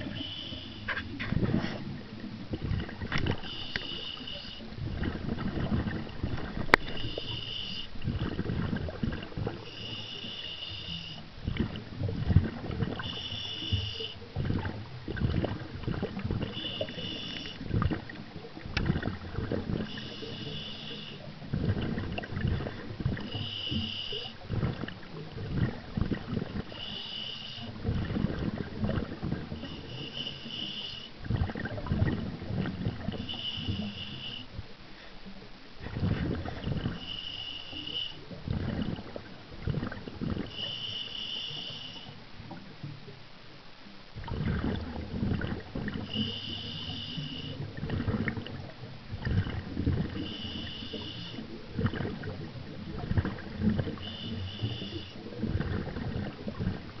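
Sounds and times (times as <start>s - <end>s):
regulator inhale hiss: 0.0s - 2.0s, 3.3s - 4.8s, 6.6s - 8.0s, 9.6s - 11.3s, 13.0s - 14.3s, 16.5s - 17.7s, 19.8s - 21.4s, 22.7s - 24.4s, 26.6s - 27.8s, 29.5s - 31.2s, 33.1s - 35.3s, 36.9s - 38.3s, 40.5s - 42.2s, 46.0s - 47.8s, 50.1s - 51.6s, 54.0s - 55.3s
exhaled bubbles rumbling: 0.0s - 57.0s.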